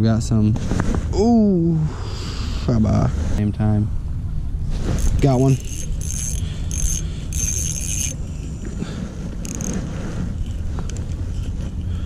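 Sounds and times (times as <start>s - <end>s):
wind on microphone: 4.2s - 12.0s
fishing reel whirring: 4.8s - 12.0s.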